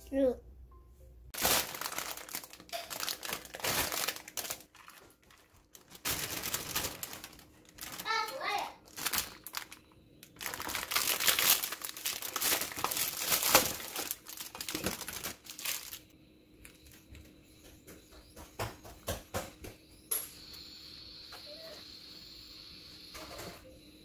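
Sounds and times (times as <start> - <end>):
plastic film crinkling and tearing: 1.4 - 16.1.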